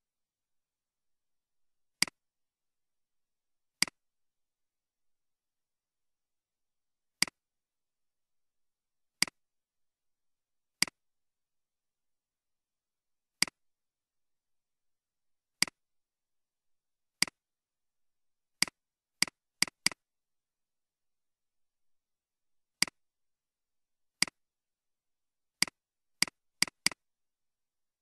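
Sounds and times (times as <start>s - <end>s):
computer mouse clicks: 2.0s - 2.2s, 3.8s - 4.0s, 9.2s - 9.4s, 10.8s - 11.0s, 13.4s - 13.6s, 15.6s - 15.8s, 17.2s - 17.4s, 18.6s - 20.0s, 22.8s - 23.0s, 24.2s - 24.4s, 25.6s - 27.0s.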